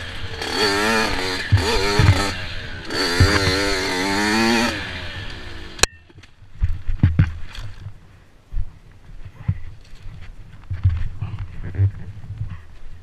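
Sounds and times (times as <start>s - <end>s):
dirt bike engine revving: 0.0s - 5.9s
bike thudding over bumps: 0.0s - 13.0s.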